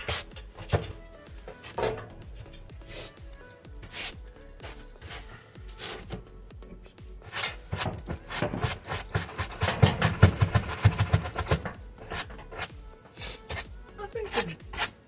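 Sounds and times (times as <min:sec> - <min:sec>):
stiff brush scrubbing carpet: 0:03.8 - 0:06.2, 0:07.2 - 0:13.7.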